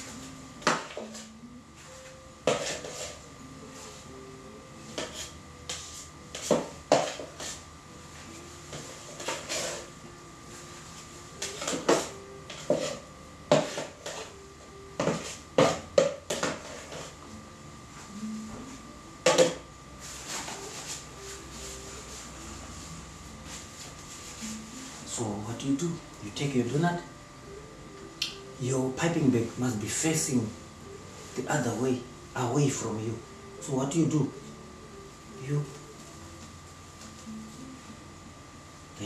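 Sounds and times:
spatula knocking and scraping tub: 0:02.4 - 0:03.2, 0:05.0 - 0:07.6, 0:11.5 - 0:14.3, 0:15.0 - 0:17.1.

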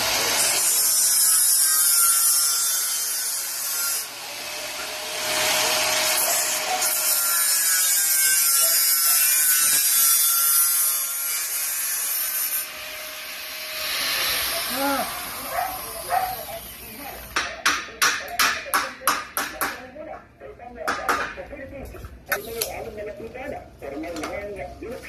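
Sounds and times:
arc welding crackling sizzle: 0:00.0 - 0:17.4.

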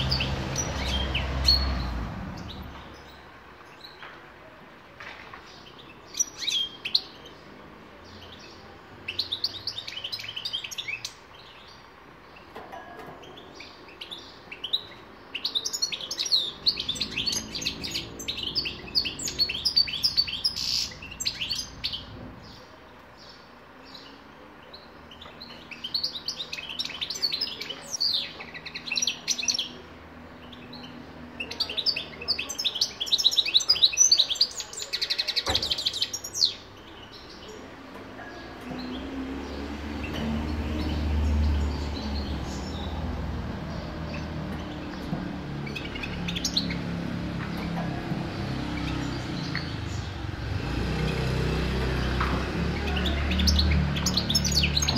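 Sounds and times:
finch twittering song: 0:13.2 - 0:22.6, 0:23.2 - 0:54.9.

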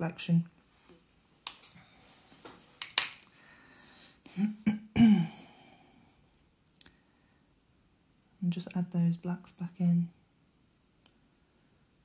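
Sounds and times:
person throat-clearing: 0:04.3 - 0:05.8.

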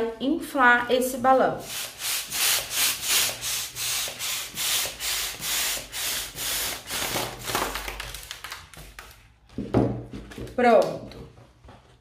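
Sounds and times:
hand balloon pump strokes: 0:01.6 - 0:07.6.

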